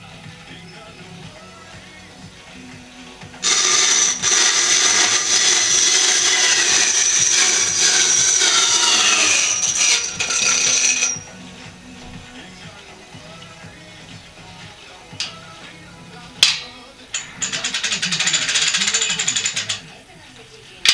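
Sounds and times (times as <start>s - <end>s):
saw blade cutting wood: 3.4s - 11.4s, 17.2s - 19.8s.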